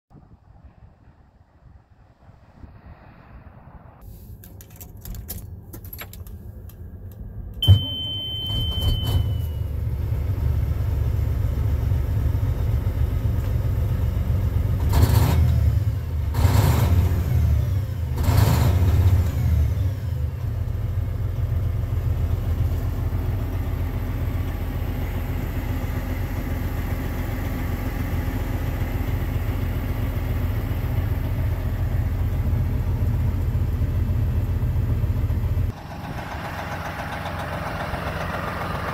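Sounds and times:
diesel truck engine running: 4.2 - 38.9
short high tone: 7.6 - 9.6.

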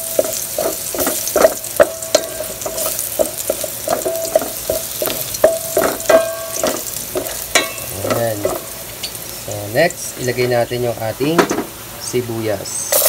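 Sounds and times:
pot ringing: 0.0 - 9.2
spatula knocking and scraping pot: 0.0 - 9.2
garlic sizzling in hot oil: 0.0 - 13.0.

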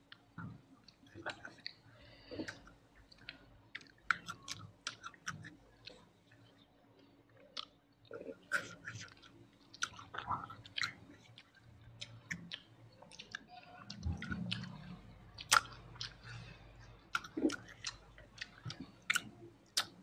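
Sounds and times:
chewing and wet mouth noises: 0.1 - 20.0.

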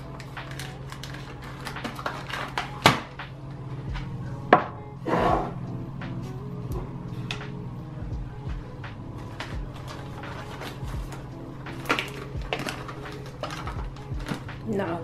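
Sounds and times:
plastic wrap rustling: 0.0 - 2.9, 9.2 - 14.6.

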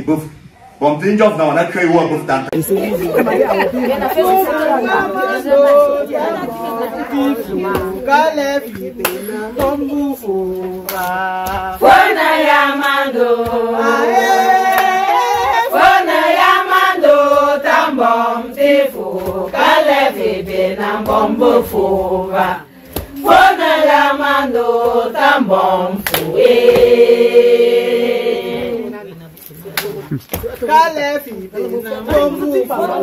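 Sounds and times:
women singing in chorus: 2.9 - 29.0.

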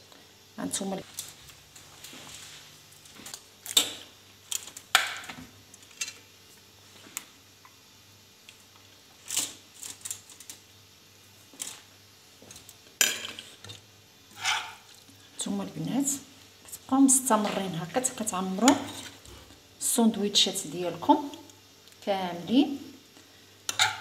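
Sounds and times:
metal spoon scraping a plate: 14.3 - 14.8.

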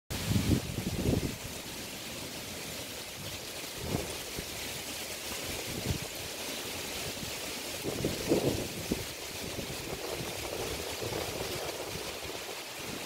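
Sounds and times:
wind buffeting microphone: 0.1 - 1.5, 3.2 - 4.7, 5.3 - 6.4, 7.0 - 13.0
wind rushing through palm fronds: 0.1 - 13.0.

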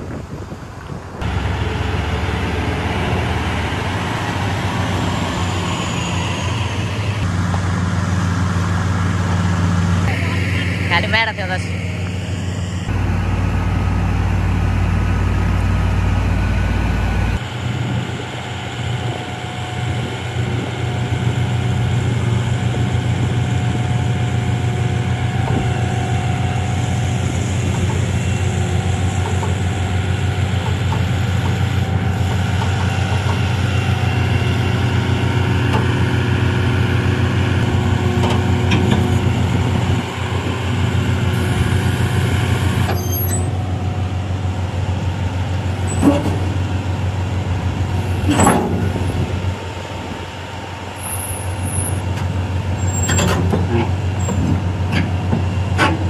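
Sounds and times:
deep rumble: 0.0 - 42.8, 43.4 - 51.8
diesel engine idling: 0.0 - 56.0.

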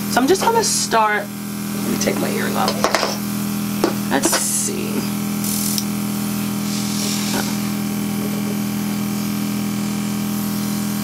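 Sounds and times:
compressor humming: 0.0 - 11.0
air hissing from airbrush: 5.4 - 11.0.

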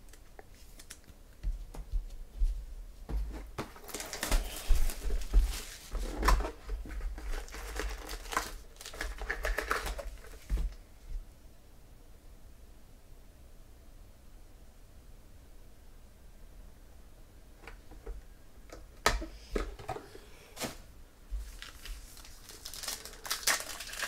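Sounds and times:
foil packs crinkling: 3.7 - 10.8, 21.4 - 24.0.

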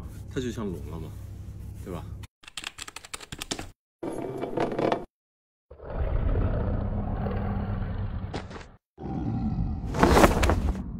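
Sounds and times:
dragon roar sound effect: 9.0 - 10.0.

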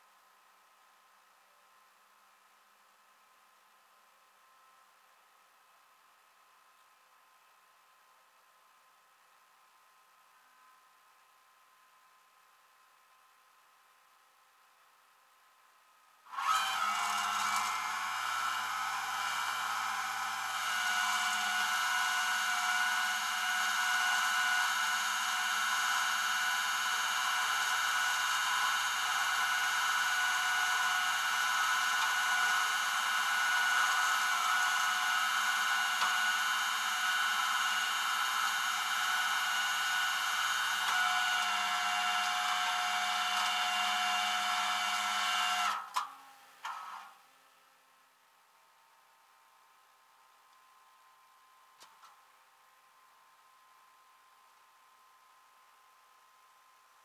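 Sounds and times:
hydraulic winch whining: 16.3 - 46.0.

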